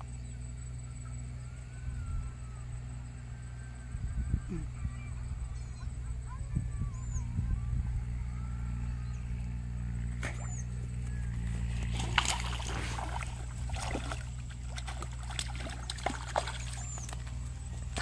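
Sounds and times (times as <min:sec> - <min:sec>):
steady low hum: 0:00.0 - 0:18.0
fish splashing in water: 0:10.2 - 0:18.0.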